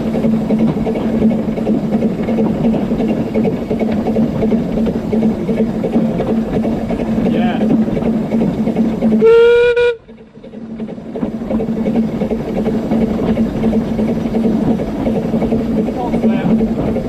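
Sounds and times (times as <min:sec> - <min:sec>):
train running noise: 0:00.0 - 0:17.0
steam whistle blast: 0:09.2 - 0:10.0.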